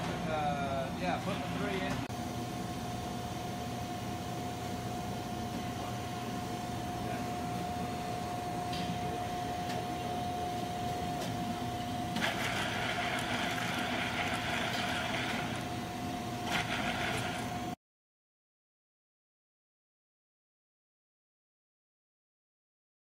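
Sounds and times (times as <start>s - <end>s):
low machine hum: 0.0s - 17.8s
extrusion machine whine: 1.3s - 17.8s.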